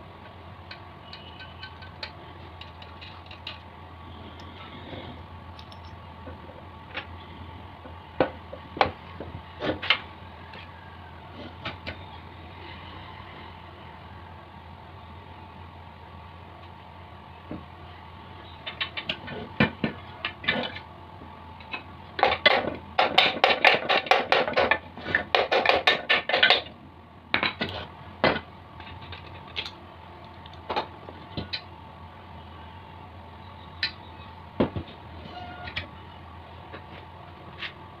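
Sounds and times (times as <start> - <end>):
metal engine parts clattering: 0.7 - 3.7, 5.5 - 7.1.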